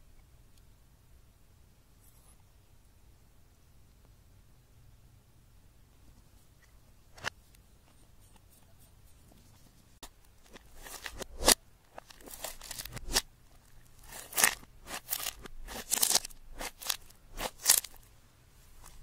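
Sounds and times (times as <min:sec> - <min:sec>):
slime squelching and crackling: 0:10.0 - 0:18.1.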